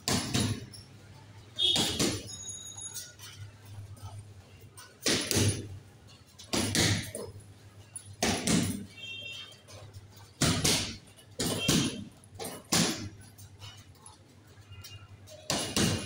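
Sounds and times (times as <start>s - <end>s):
punches thudding on heavy bag: 0.0s - 0.7s, 1.6s - 2.3s, 5.0s - 5.8s, 6.4s - 7.4s, 8.2s - 9.0s, 9.9s - 13.3s, 15.4s - 16.0s.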